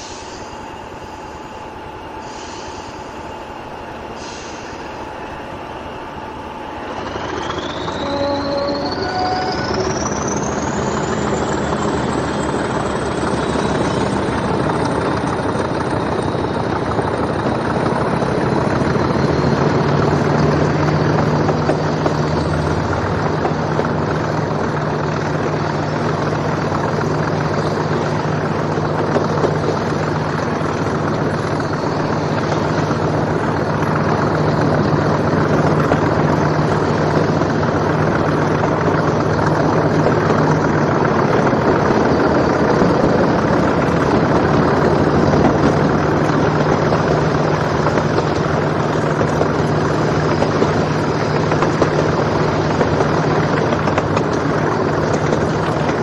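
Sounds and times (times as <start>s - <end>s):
diesel locomotive engine: 0.0s - 56.0s
turbocharger whistle: 6.9s - 14.0s.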